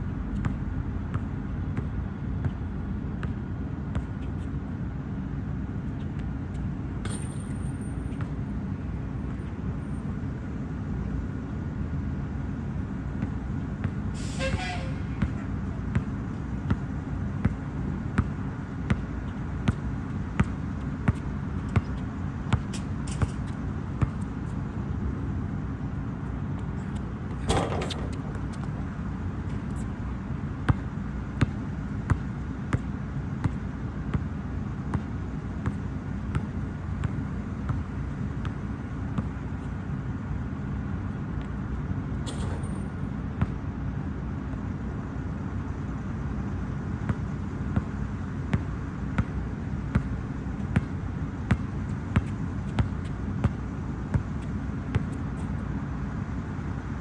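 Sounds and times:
basketball bouncing on hard court: 0.4s - 4.2s, 15.2s - 24.3s, 26.8s - 28.8s, 30.7s - 34.3s, 34.9s - 38.6s, 48.5s - 55.4s.

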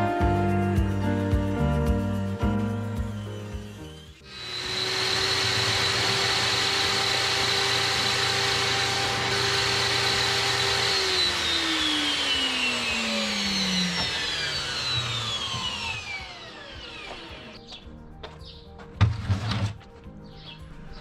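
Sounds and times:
circular saw whining: 2.7s - 17.6s.

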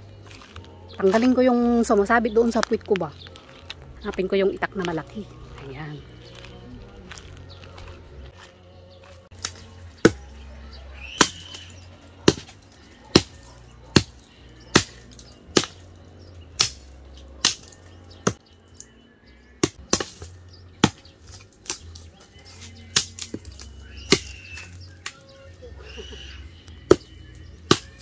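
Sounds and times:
machete chopping wood: 9.3s - 10.4s, 11.1s - 15.8s, 16.6s - 18.4s, 19.6s - 25.2s, 26.8s - 28.0s.

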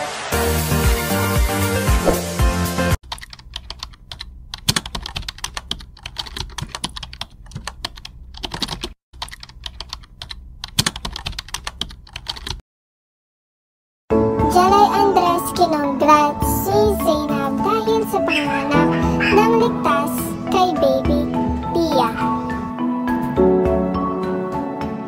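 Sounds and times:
keyboard typing clicks: 3.1s - 12.6s.

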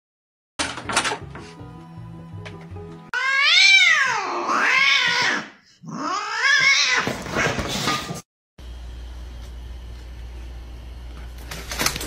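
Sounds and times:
cat meowing: 3.2s - 7.2s.

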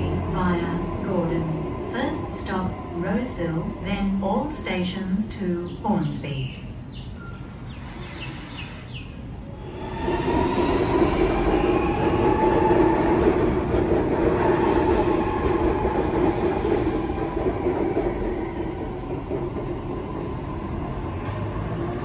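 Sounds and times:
train rolling rumble: 0.0s - 22.0s.

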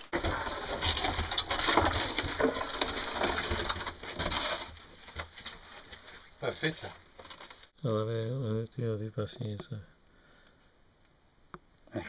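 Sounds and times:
cart wheels crunching and rattling: 0.0s - 7.7s.

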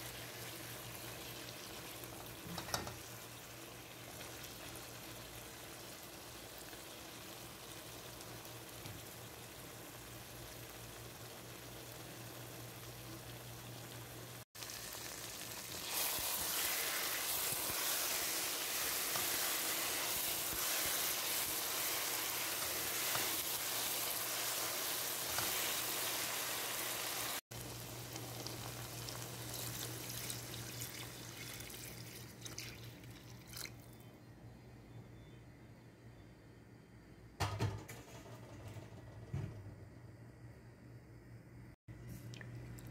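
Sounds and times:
water pouring into sizzling pot: 0.0s - 33.9s.

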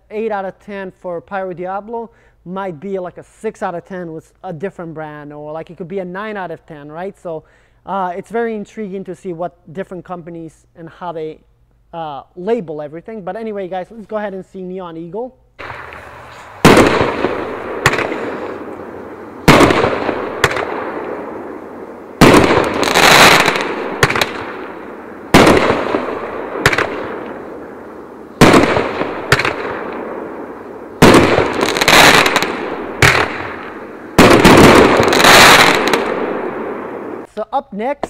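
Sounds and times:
fainter firework bang: 15.6s - 18.8s, 19.4s - 21.6s, 22.2s - 27.4s, 28.4s - 30.2s, 31.0s - 36.8s
firework reports with echo: 15.6s - 37.3s
firework rushing hiss: 15.6s - 37.3s.

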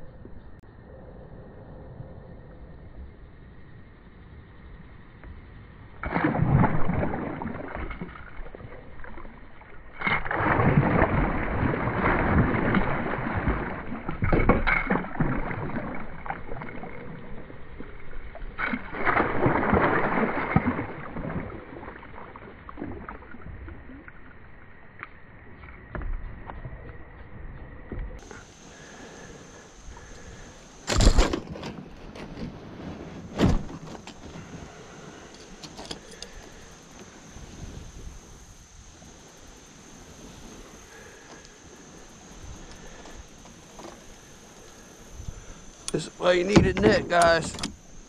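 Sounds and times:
water lapping: 6.0s - 24.2s, 28.2s - 48.0s
fish thrashing and splashing: 10.0s - 17.4s, 18.6s - 21.8s, 30.0s - 31.9s.

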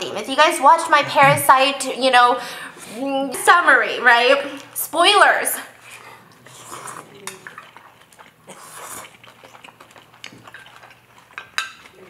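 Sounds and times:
noodles slurped: 5.8s - 12.0s.

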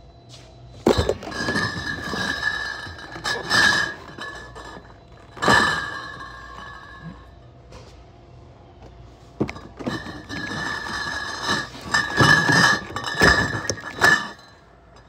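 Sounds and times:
cardboard scraping and shuffling: 0.8s - 7.2s
glass bottles clinking: 0.8s - 7.3s, 9.4s - 15.0s.

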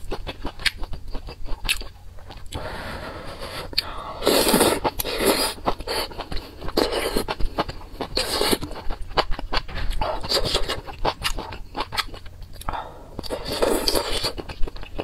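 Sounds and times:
wet chewing: 3.7s - 15.0s.

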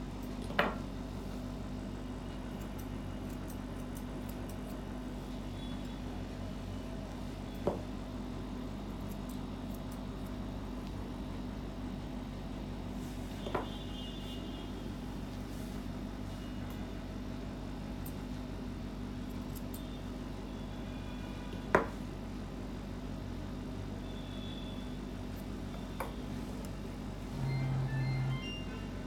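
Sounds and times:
low hum: 27.3s - 29.0s.

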